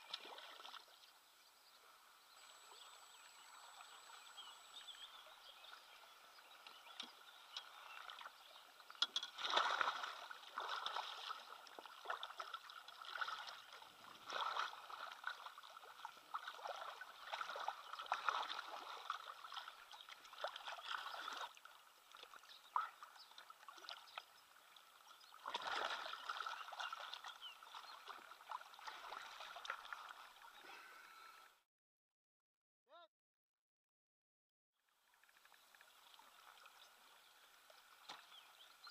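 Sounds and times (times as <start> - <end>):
fish splashing in water: 9.3 - 21.6, 25.4 - 30.2.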